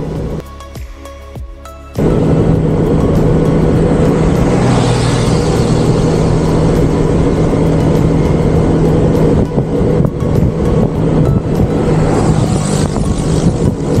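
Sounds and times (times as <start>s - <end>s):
motorcycle engine drone: 0.0s - 0.5s, 2.0s - 14.0s
wind and road noise: 0.0s - 14.0s.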